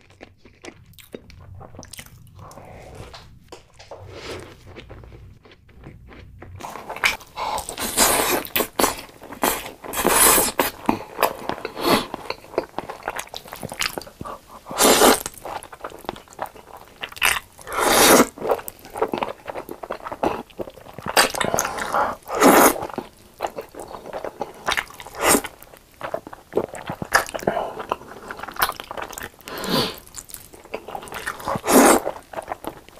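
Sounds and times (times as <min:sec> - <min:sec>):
wet chewing: 0:00.0 - 0:03.2, 0:04.0 - 0:32.9
noodle slurping: 0:06.6 - 0:12.4, 0:14.2 - 0:15.3, 0:17.6 - 0:18.6, 0:21.2 - 0:23.0, 0:30.8 - 0:32.6.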